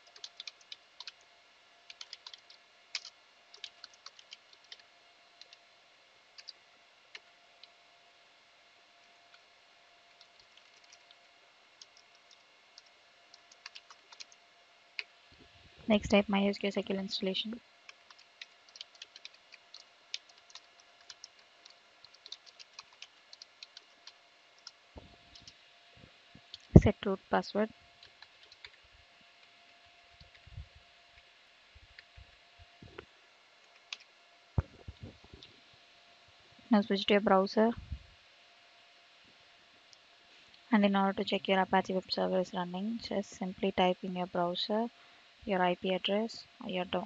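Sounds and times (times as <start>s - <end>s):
keyboard typing: 0.0s - 1.2s, 1.9s - 5.6s, 6.4s - 7.8s, 10.1s - 11.2s, 11.8s - 14.4s, 17.9s - 25.6s, 28.0s - 28.8s.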